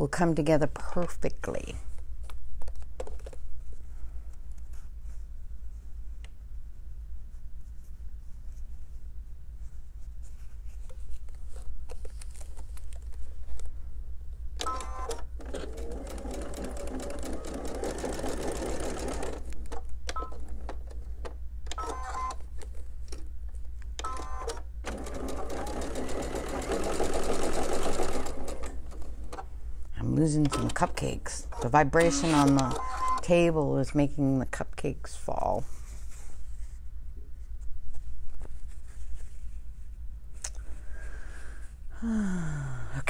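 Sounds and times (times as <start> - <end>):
sewing machine stitching: 14.7 - 19.5, 24.1 - 29.4, 30.4 - 33.2.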